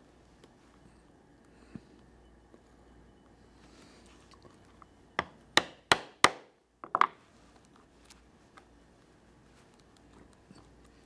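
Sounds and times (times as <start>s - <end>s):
mallet striking a chisel: 5.2s - 6.4s.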